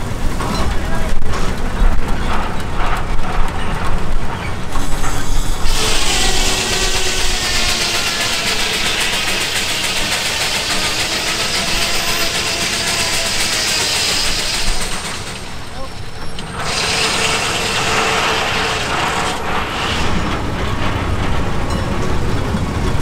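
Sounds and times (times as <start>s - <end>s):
engine rumble: 0.0s - 23.0s
saw high-pitched whine and hiss: 4.8s - 20.4s.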